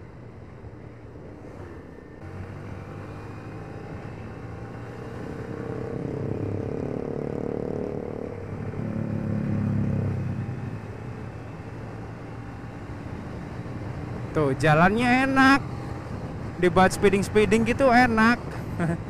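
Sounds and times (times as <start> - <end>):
motorcycle engine accelerating: 2.2 - 14.3.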